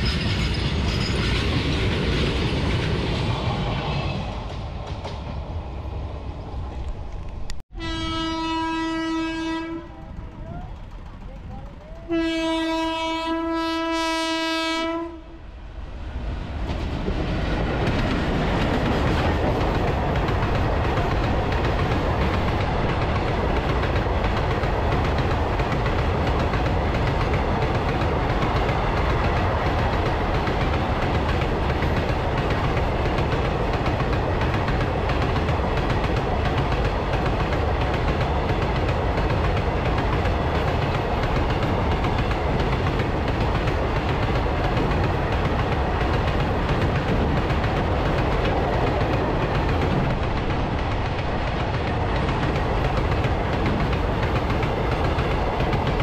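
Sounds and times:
locomotive horn blast: 7.7s - 10.1s, 12.1s - 15.4s.

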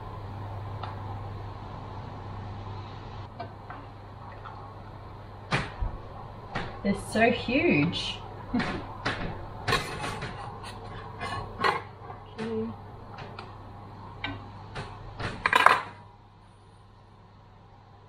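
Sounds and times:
steady low hum: 0.0s - 18.0s
metal utensils scraping a pot: 9.7s - 11.9s.

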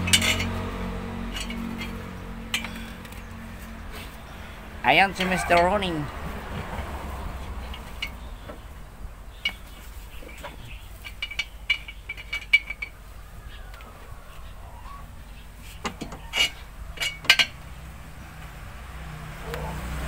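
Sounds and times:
metal tools clinking on metal: 0.0s - 3.4s, 4.9s - 6.0s, 7.6s - 8.3s, 9.3s - 13.0s, 15.8s - 17.6s.

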